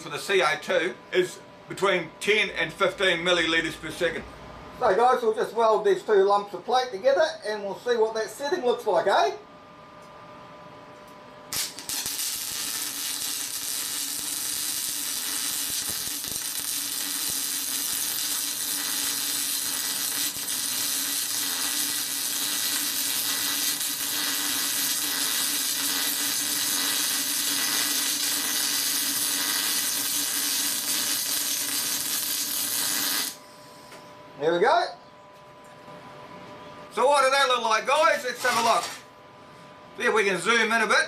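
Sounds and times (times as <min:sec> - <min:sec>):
welding arc hissing and crackling: 0:11.5 - 0:33.4, 0:38.0 - 0:39.0.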